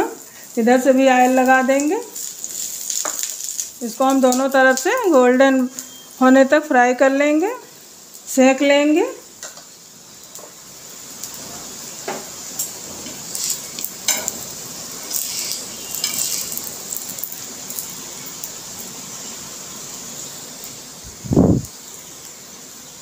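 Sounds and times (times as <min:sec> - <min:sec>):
oil sizzling: 0:00.0 - 0:23.0
metal tongs tapping a griddle: 0:12.1 - 0:14.5, 0:15.1 - 0:17.3.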